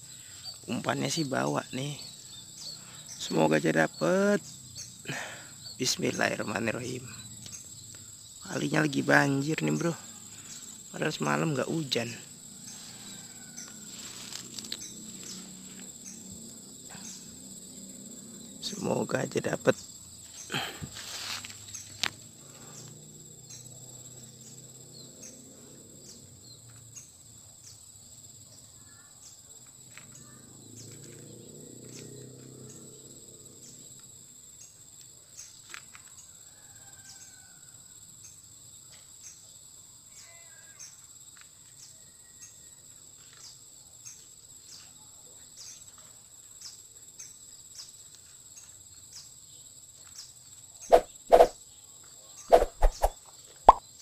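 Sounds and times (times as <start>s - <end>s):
faint bird chirps: 0.0s - 17.4s, 50.0s - 54.0s
pulsing insect chorus: 0.0s - 54.0s.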